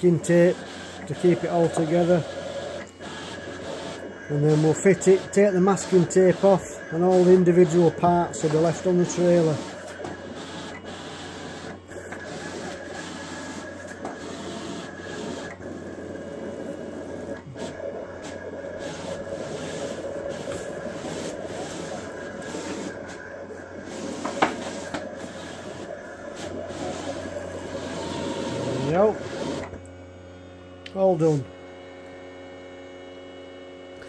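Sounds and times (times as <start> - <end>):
vinyl cutter motors whirring: 0.0 - 34.0.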